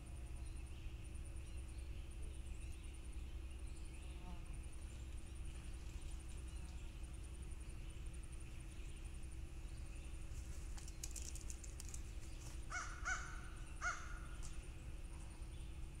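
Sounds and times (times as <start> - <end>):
low rumble and hum: 0.0 - 16.0.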